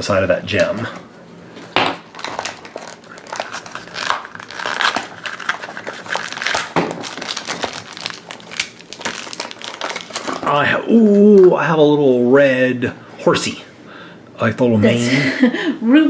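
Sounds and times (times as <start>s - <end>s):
foil bag crinkling: 2.0s - 10.6s.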